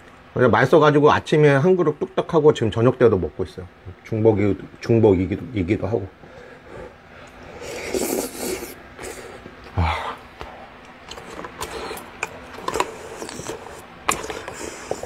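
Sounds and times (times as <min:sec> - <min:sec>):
chewing with wet mouth clicks: 0:10.8 - 0:15.0.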